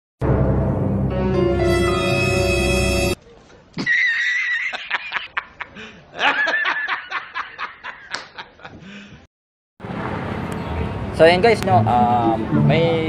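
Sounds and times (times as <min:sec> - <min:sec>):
man laughing heartily: 0:03.8 - 0:09.0.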